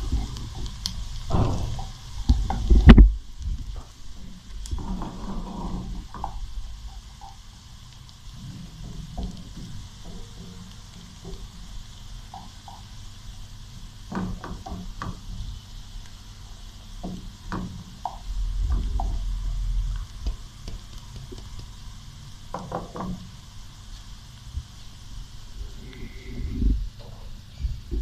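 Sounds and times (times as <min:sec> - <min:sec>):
onions sizzling in oil: 0:00.0 - 0:28.0
wooden spatula knocking on pan: 0:12.2 - 0:12.9, 0:14.1 - 0:15.5, 0:17.0 - 0:19.3, 0:20.2 - 0:21.8, 0:22.5 - 0:23.3
low rumble: 0:24.6 - 0:28.0.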